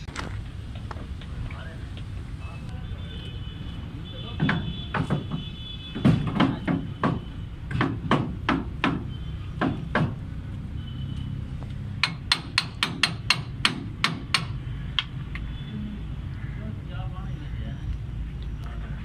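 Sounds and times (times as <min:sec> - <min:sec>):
hammer striking metal: 0:12.0 - 0:14.6.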